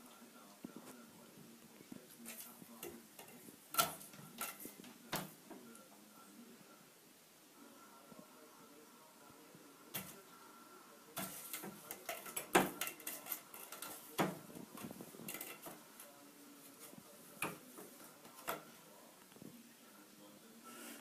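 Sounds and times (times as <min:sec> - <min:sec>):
hard objects clattering and knocking: 0:11.2 - 0:15.8.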